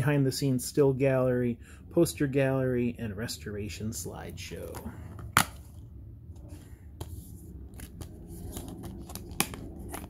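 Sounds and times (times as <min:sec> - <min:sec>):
plastic case snapping open: 0:05.2 - 0:05.6.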